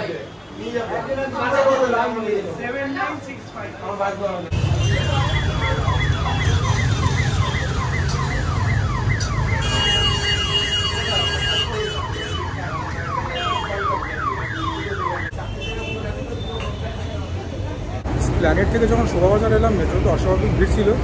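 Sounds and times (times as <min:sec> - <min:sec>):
low traffic rumble: 0:00.0 - 0:21.0
electronic siren sweeping: 0:05.2 - 0:09.8, 0:12.0 - 0:15.3.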